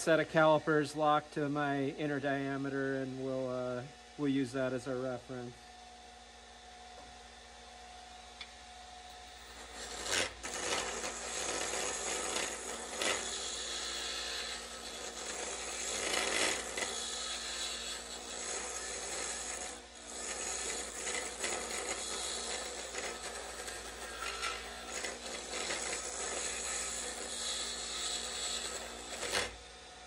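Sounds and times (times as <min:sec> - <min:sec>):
lathe tool scraping wood: 0:09.1 - 0:29.7.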